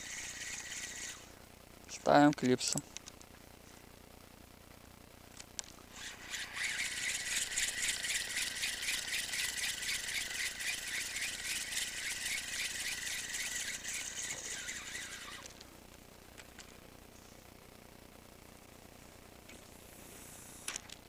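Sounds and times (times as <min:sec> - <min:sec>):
fishing reel rattling whir: 0:00.0 - 0:01.4, 0:05.9 - 0:15.7.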